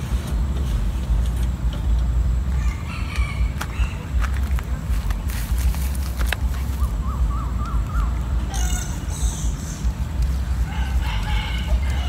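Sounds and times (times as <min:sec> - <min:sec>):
birds warbling: 0:02.5 - 0:12.0
harsh crow-like calls: 0:10.6 - 0:12.0.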